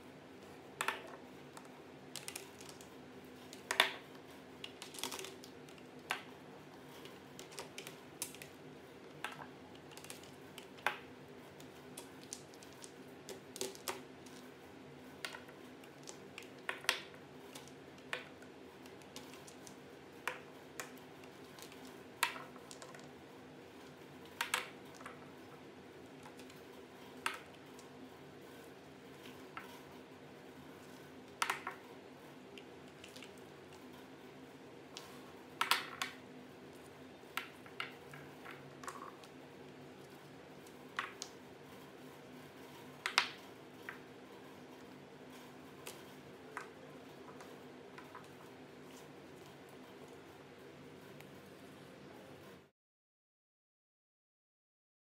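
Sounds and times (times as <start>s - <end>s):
stones clicking on table: 11.9s - 14.5s, 21.5s - 23.1s, 35.0s - 36.2s, 43.0s - 44.0s.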